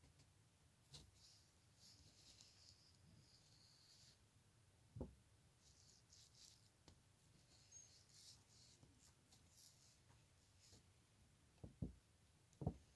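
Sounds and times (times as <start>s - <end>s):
faint soft rustles: 0.9s - 4.2s, 5.6s - 11.0s.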